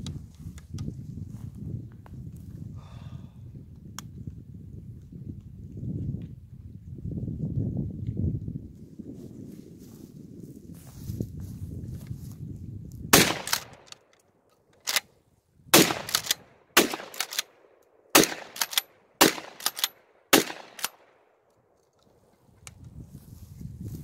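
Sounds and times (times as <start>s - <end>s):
shotgun shots: 13.1s - 13.9s, 15.7s - 21.1s
shotgun pump racking clack: 13.2s - 14.2s, 14.8s - 15.1s, 15.8s - 17.5s, 18.2s - 21.0s.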